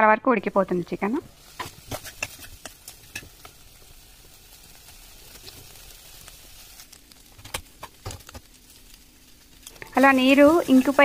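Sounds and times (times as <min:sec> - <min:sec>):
faint steady sizzle: 0:00.0 - 0:11.0
spoon scraping metal pan: 0:01.4 - 0:03.4.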